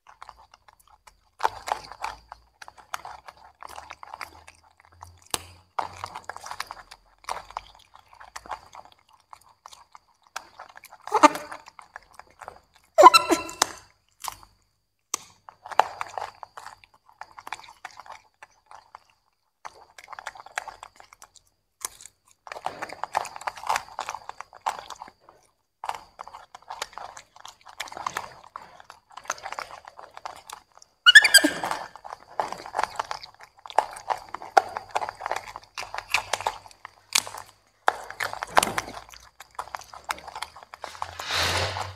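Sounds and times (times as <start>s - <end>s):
monkeys chewing with wet crunching: 0.0s - 41.2s
monkey calls: 11.1s - 11.6s, 13.0s - 13.8s, 31.1s - 31.9s.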